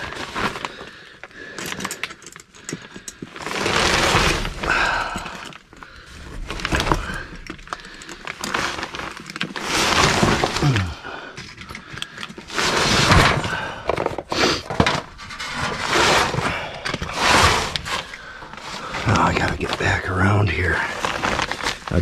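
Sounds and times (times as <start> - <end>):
plastic sheeting crinkling: 0.0 - 1.0, 3.4 - 11.0, 15.2 - 22.0.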